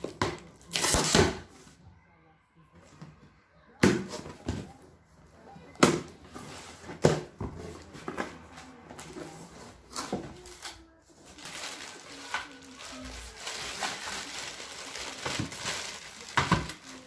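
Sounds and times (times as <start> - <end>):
packaging rustling: 8.3 - 17.0.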